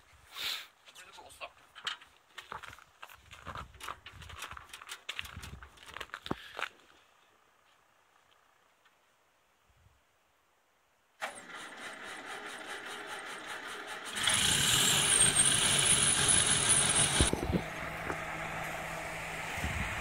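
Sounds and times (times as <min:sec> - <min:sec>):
starter motor cranking: 0:11.2 - 0:18.8
tractor engine running: 0:11.2 - 0:20.0.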